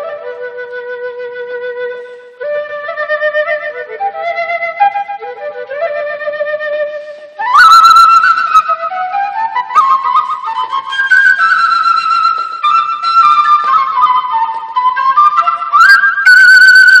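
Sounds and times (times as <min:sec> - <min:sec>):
wooden flute melody: 0:00.0 - 0:17.0.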